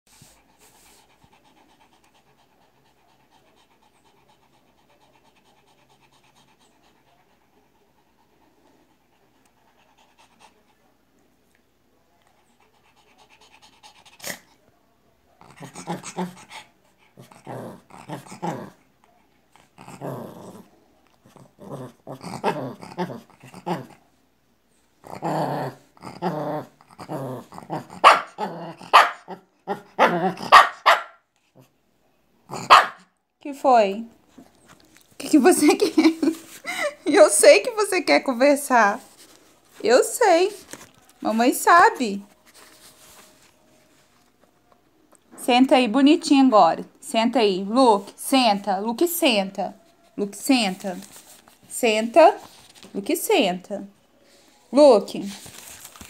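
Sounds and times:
small dog barking: 28.0s - 31.2s, 32.5s - 33.1s.

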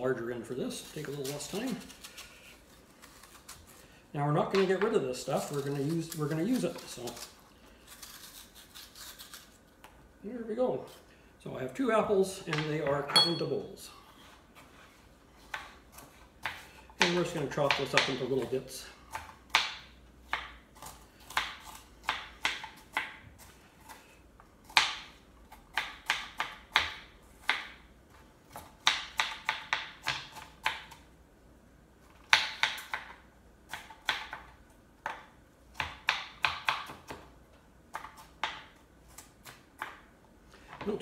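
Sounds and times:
knife chopping on plastic board: 21.3s - 23.2s, 28.5s - 31.0s, 32.2s - 37.3s.

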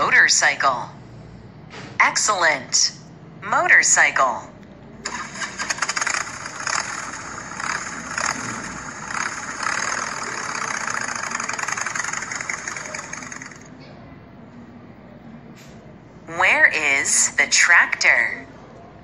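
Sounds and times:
motorcycle engine running: 5.3s - 13.7s.

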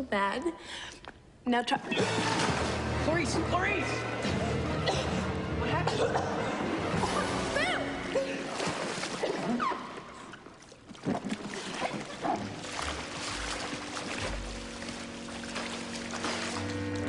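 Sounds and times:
pool water splashing and dripping: 1.9s - 17.0s
sustained music notes: 12.6s - 17.0s.

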